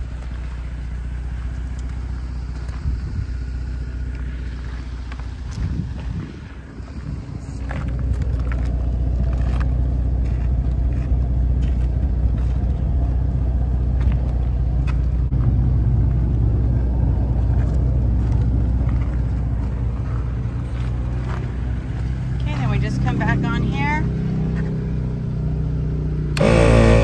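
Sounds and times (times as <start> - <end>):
air compressor droning: 26.3 - 27.0.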